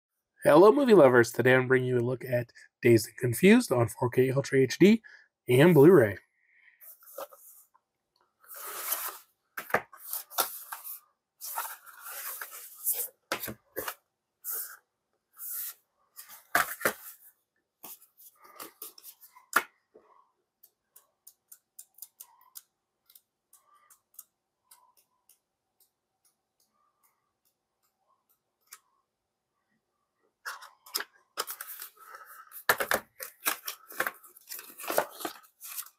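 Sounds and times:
booklet pages flipping: 0:06.8 - 0:07.6, 0:08.5 - 0:14.8, 0:15.4 - 0:19.8, 0:30.4 - 0:35.9
paper rustling: 0:08.5 - 0:14.8, 0:30.5 - 0:35.9
plastic disc case clacking: 0:32.6 - 0:35.8.

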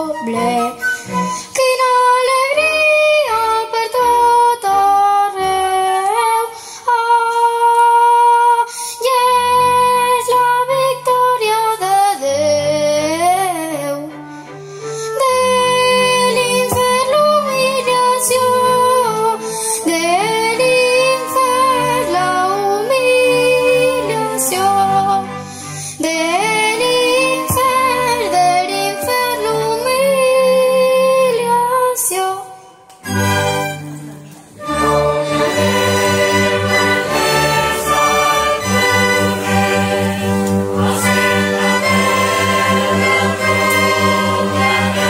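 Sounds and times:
instrumental accompaniment with bass: 0:00.0 - 0:08.5, 0:09.1 - 0:32.1, 0:32.8 - 0:45.0
girl singing slow melody: 0:01.5 - 0:14.1.

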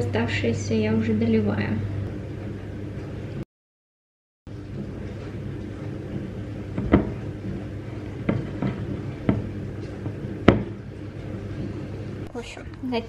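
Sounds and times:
wooden spoon stirring dough: 0:04.5 - 0:12.3.

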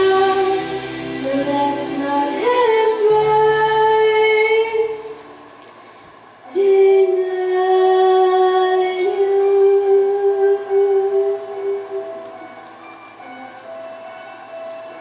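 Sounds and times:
girl singing long held notes: 0:00.0 - 0:05.2, 0:06.4 - 0:12.3.

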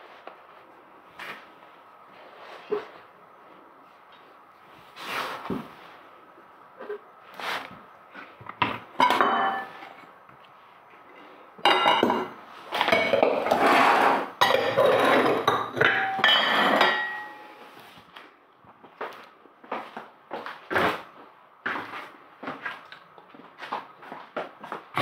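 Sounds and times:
pots and dishes clattering: 0:08.6 - 0:10.0, 0:11.6 - 0:17.6
spatula scraping in pan: 0:13.4 - 0:14.4.

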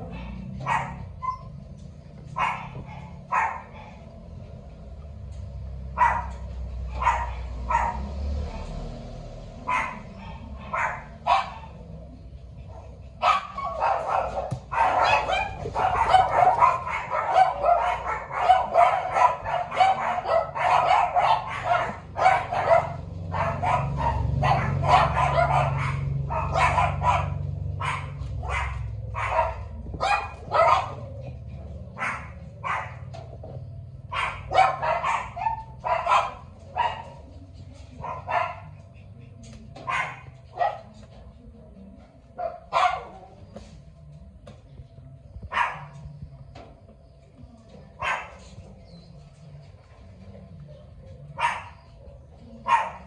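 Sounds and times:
dog barking and yipping: 0:00.0 - 0:04.0, 0:05.8 - 0:08.2, 0:09.6 - 0:12.0, 0:12.7 - 0:37.3, 0:38.0 - 0:38.8, 0:39.8 - 0:41.0, 0:42.4 - 0:43.4, 0:45.4 - 0:46.1, 0:48.0 - 0:48.6, 0:51.3 - 0:53.0.

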